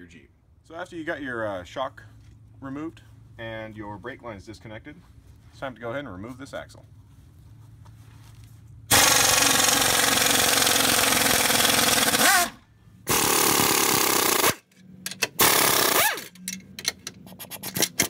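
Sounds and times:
pneumatic impact wrench hammering: 0:08.9 - 0:18.0.

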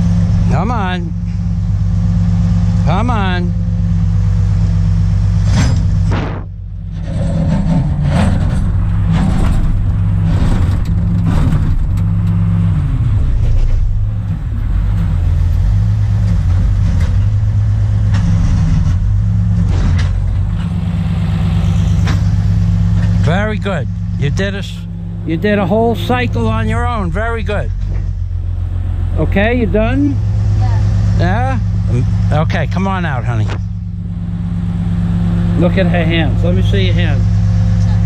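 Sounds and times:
excavator engine droning: 0:00.0 - 0:38.0
knocks and clanks: 0:05.4 - 0:12.5, 0:16.1 - 0:24.2, 0:27.6 - 0:28.3.

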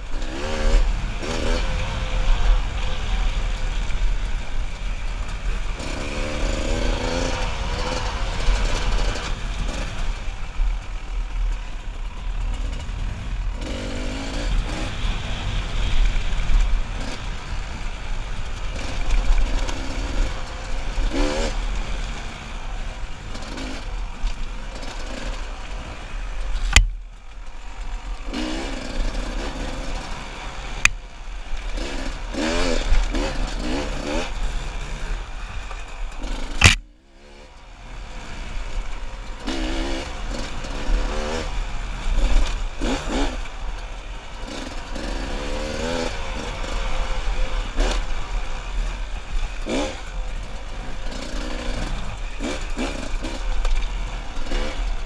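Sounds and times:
dirt bike engine revving: 0:00.0 - 0:26.9, 0:27.7 - 0:55.0.

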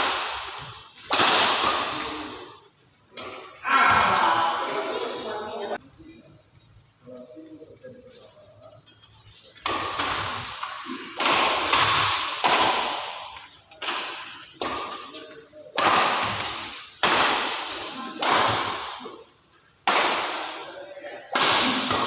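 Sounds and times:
rackets smacking shuttlecock: 0:00.0 - 0:03.6, 0:09.2 - 0:19.1.

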